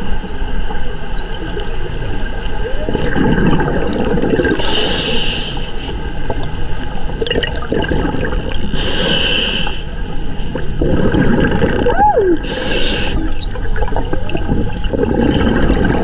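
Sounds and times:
dolphins whistling underwater: 0.0s - 6.0s, 8.8s - 15.6s
scuba exhaled bubbles: 2.6s - 5.4s, 7.2s - 9.6s, 10.8s - 16.0s.

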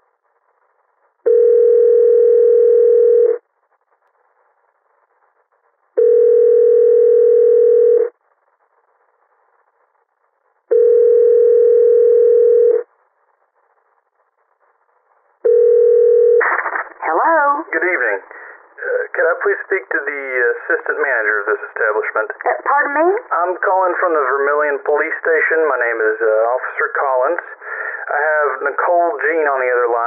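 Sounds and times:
telephone ringback tone: 1.3s - 3.4s, 6.0s - 8.1s, 10.7s - 12.8s, 15.5s - 16.4s.

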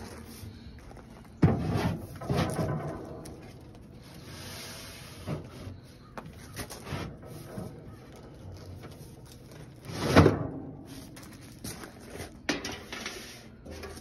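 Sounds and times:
metal pans clanking and scraping: 12.2s - 14.0s.

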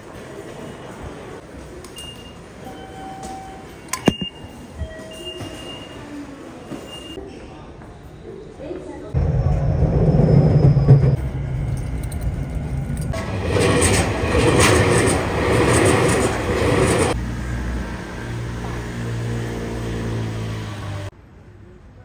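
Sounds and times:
train rumbling: 9.1s - 21.1s.

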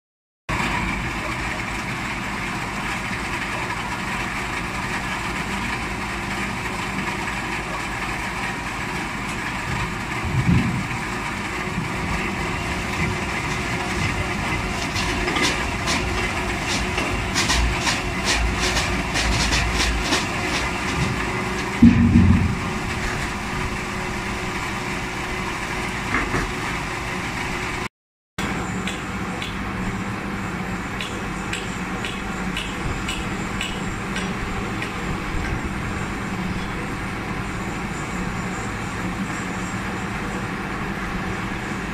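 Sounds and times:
machine running: 0.5s - 36.4s
rattling and clattering: 12.9s - 23.0s
heavy thumps: 16.8s - 22.9s.

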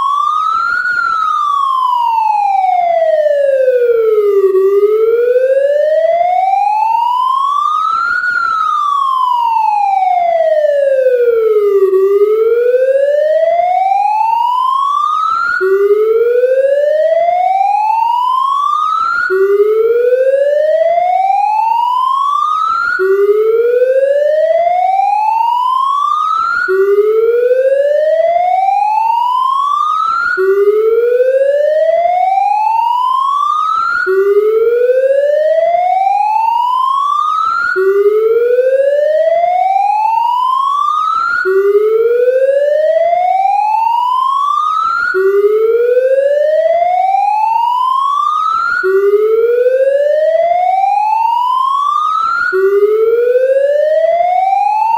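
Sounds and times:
rising police siren: 0.0s - 54.9s.

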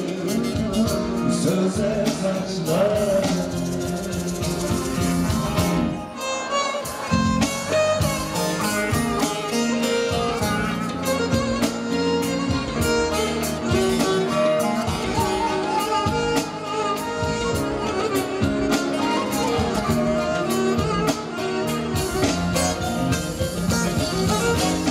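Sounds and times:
live band instrumental: 0.0s - 24.9s.

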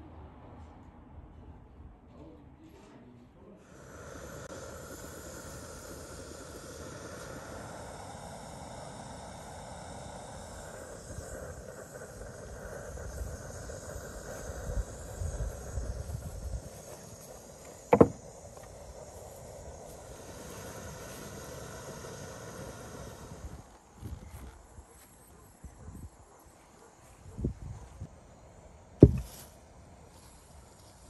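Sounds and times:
sharp knock: 17.9s - 18.2s, 29.0s - 29.3s.

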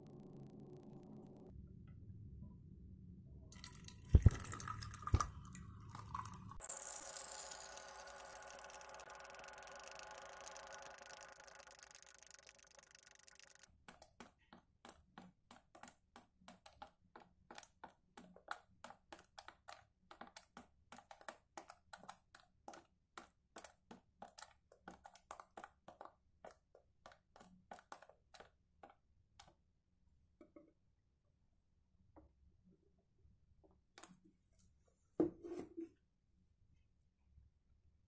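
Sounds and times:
water trickling into plastic bottle: 3.6s - 13.7s.

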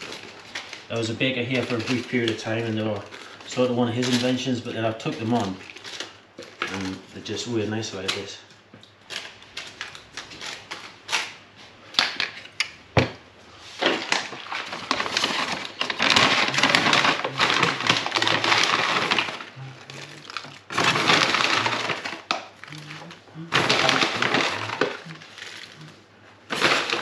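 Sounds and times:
paper bag crinkling: 0.0s - 8.3s, 13.7s - 27.0s.

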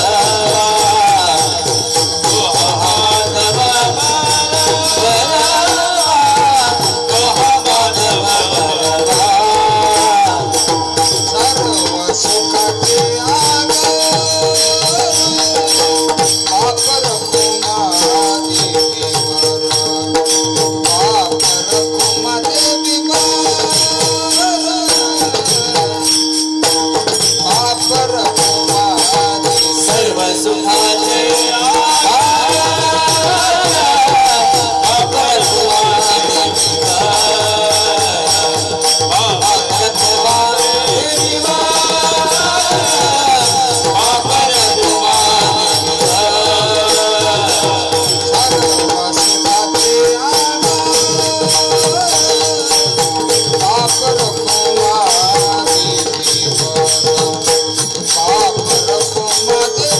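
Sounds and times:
group singing a chant: 0.0s - 15.8s, 28.3s - 53.4s
hand cymbals clashing: 0.0s - 59.9s.

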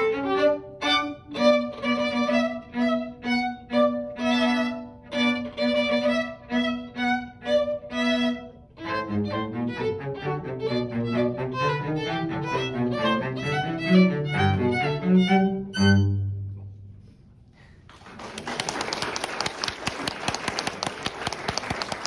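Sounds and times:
violin and cello duet: 0.0s - 16.7s
audience applause: 17.9s - 22.0s.

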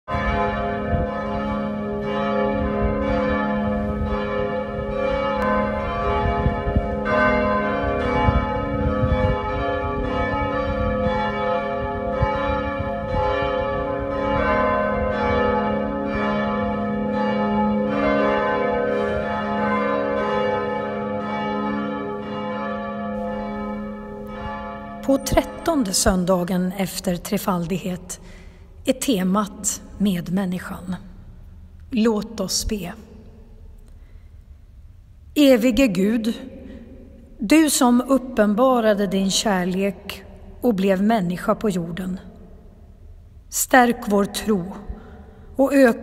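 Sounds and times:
church bells pealing: 0.1s - 31.0s.

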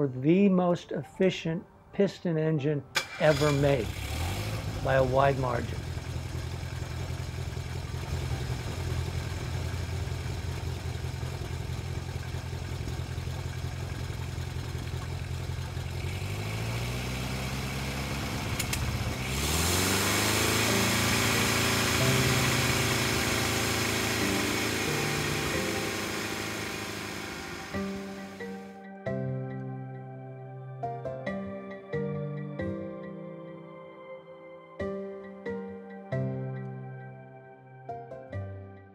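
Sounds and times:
music: 0.0s - 3.9s, 4.8s - 5.8s, 19.8s - 38.9s
piston engine idling: 5.7s - 28.7s
rising tone: 16.1s - 28.8s.

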